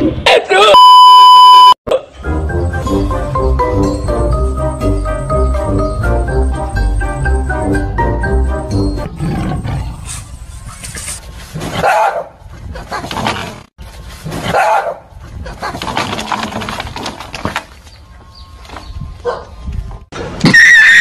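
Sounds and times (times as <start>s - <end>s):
dogs barking and snarling: 9.2s - 13.6s, 14.2s - 15.9s.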